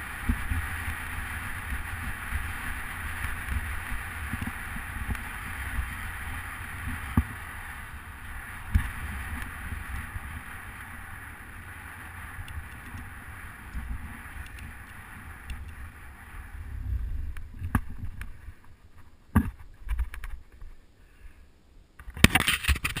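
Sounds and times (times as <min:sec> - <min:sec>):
tyres on asphalt: 0:00.0 - 0:23.0
wind on microphone: 0:12.2 - 0:18.8.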